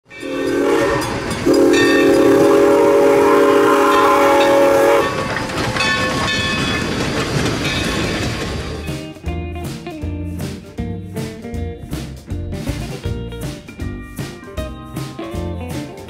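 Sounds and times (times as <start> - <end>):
train chime whistle: 0.1 - 6.5
train running and clatter: 0.1 - 16.0.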